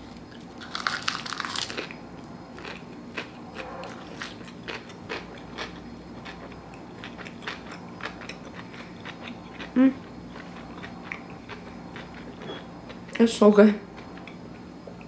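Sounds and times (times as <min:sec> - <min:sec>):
loud crunching bite: 0:00.6 - 0:02.0
chewing with clicks and smacks: 0:02.6 - 0:13.2.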